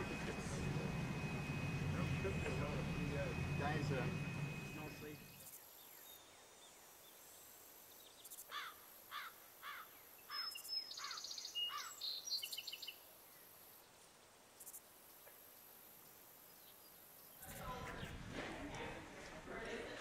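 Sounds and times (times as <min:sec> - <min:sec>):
quiet outdoor ambience: 0:00.0 - 0:20.0
songbirds singing: 0:04.7 - 0:18.3.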